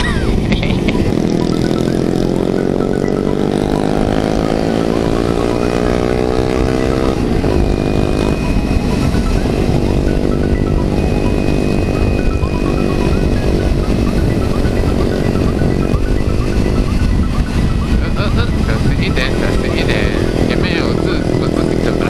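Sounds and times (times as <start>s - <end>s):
motorcycle engine accelerating: 0.0s - 22.0s
wind and road noise: 0.0s - 22.0s.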